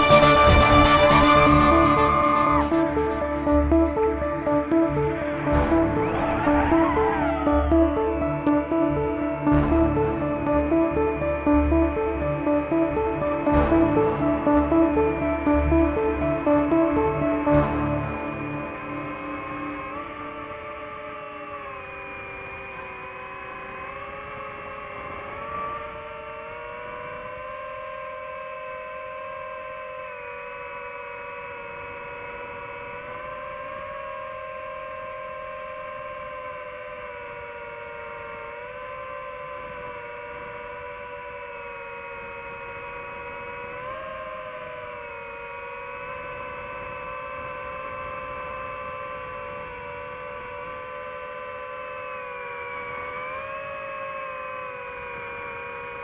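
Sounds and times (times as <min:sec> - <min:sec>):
drone propellers whining: 0:00.0 - 0:22.6.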